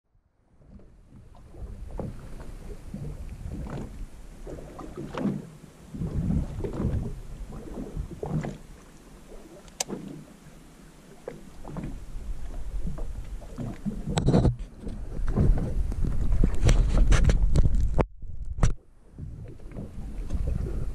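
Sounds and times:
water slapping boat hull: 0:00.5 - 0:20.9
wind buffeting microphone: 0:00.6 - 0:08.6, 0:11.6 - 0:20.9.

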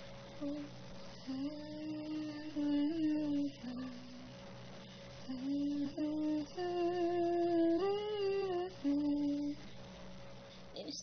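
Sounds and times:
person humming a melody: 0:00.4 - 0:04.3, 0:05.3 - 0:09.6.

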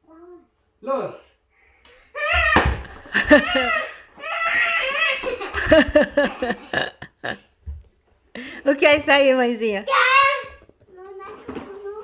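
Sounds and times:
girl shrieking: 0:02.2 - 0:05.3
people laughing loudly: 0:02.6 - 0:04.0, 0:05.2 - 0:07.4.

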